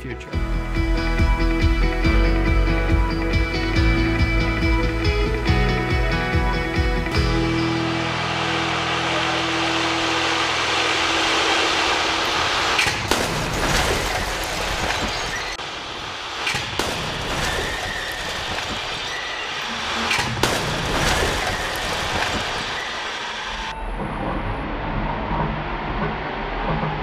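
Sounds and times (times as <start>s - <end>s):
continuous rush of noise: 7.2s - 27.0s
car crash bangs and cracks: 12.5s - 15.6s, 16.4s - 23.4s.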